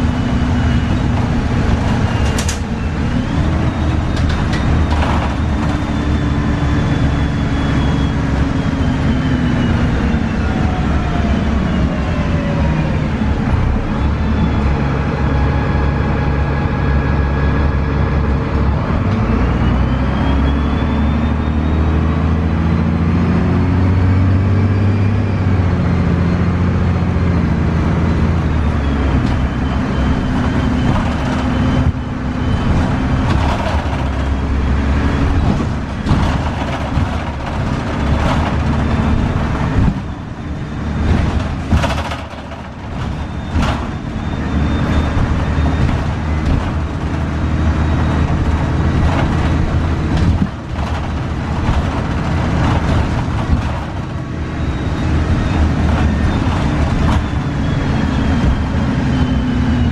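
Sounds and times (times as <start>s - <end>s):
bus diesel engine: 0.0s - 59.9s
sharp knocks and rattles: 32.6s - 34.6s, 35.4s - 40.1s, 41.0s - 44.1s.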